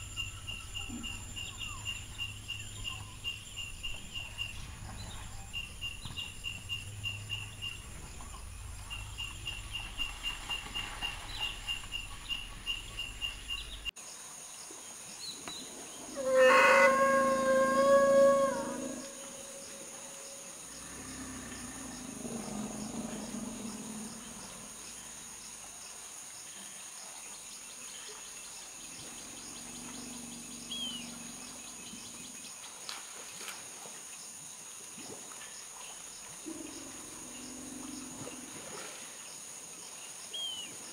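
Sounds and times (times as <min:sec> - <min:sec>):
insects chirping: 0:00.0 - 0:40.9
elephant trumpeting: 0:16.1 - 0:24.6.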